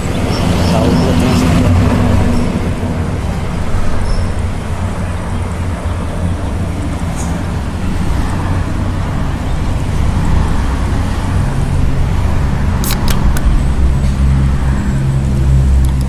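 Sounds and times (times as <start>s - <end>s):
traffic rumble: 0.0s - 16.0s
small sharp clicks: 12.8s - 13.5s.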